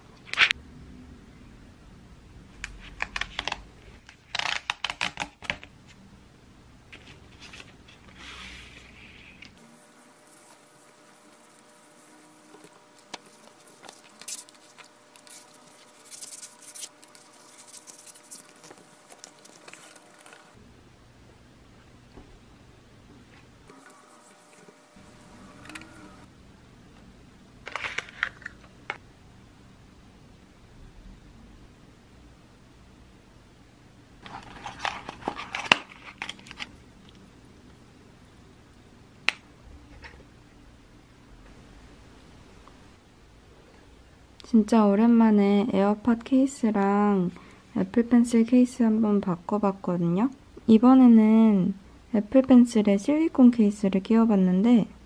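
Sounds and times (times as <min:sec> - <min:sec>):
plastic film rustling and crackling: 0:12.6 - 0:20.6.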